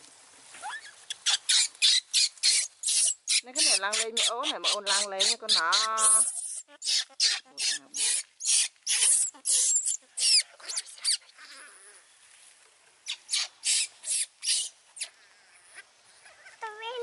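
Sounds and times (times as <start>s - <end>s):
baby monkey squealing: 0.6s - 11.8s, 13.0s - 15.2s.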